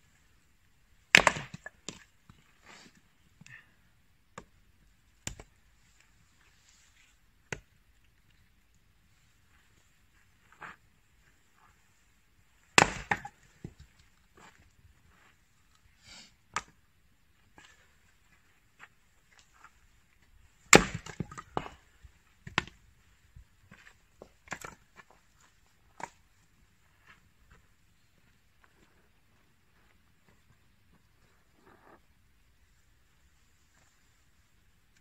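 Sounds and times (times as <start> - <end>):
axe splitting wood: 1.1 - 2.0, 5.3 - 5.5, 12.7 - 13.8, 20.7 - 21.7.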